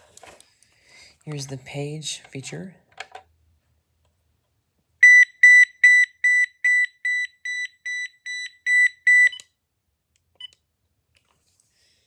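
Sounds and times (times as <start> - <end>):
cordless phone page beeps: 5.0 - 9.5.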